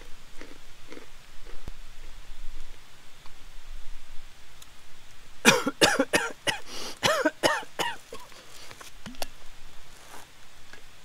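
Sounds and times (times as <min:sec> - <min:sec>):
man coughing: 0:05.5 - 0:08.3.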